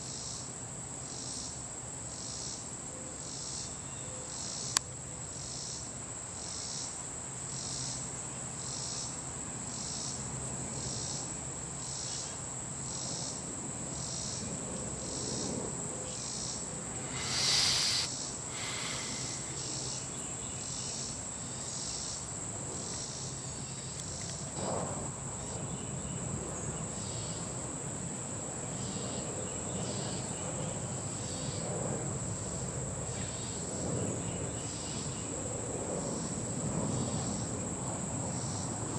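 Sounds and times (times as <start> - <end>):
insects chirping: 16.0 - 22.2
loud noisy rush: 16.9 - 19.8.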